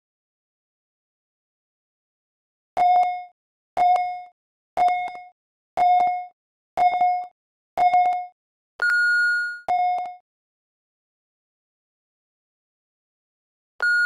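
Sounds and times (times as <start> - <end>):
short electronic timer beeps: 8.8 - 10.1, 13.8 - 14.0.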